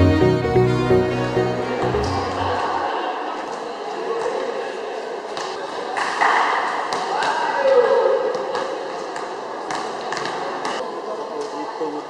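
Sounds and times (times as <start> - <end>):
players' voices and chatter: 1.2 - 12.0.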